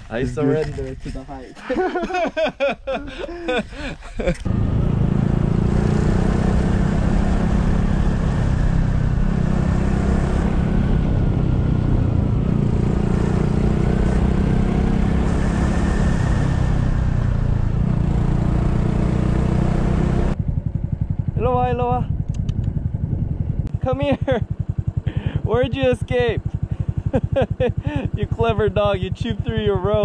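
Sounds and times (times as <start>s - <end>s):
small motorcycle engine running: 4.4s - 30.0s
wind rush on microphone: 21.2s - 23.8s.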